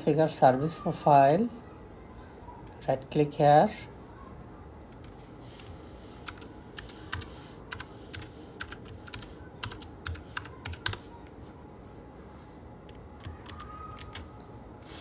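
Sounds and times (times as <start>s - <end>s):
computer keyboard typing: 4.9s - 11.1s, 12.9s - 15.0s.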